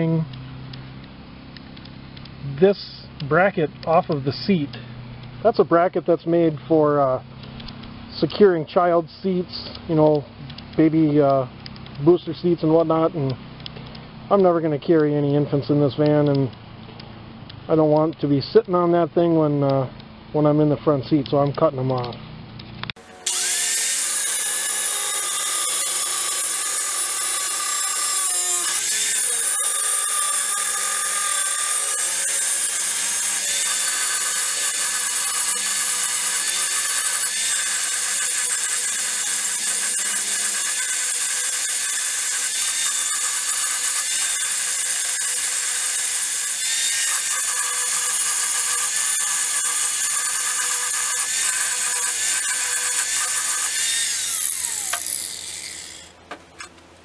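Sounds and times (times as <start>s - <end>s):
power tool whining cutting metal: 22.9s - 56.8s.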